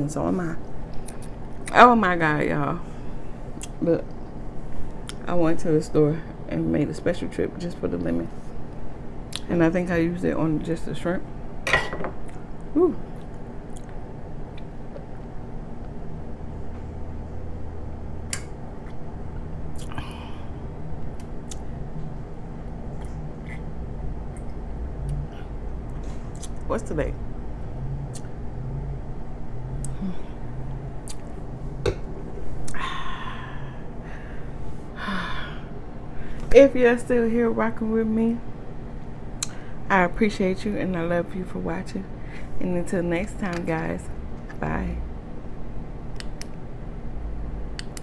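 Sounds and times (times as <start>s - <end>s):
low room hum: 0.0s - 48.0s
breathy exhales: 32.7s - 36.4s.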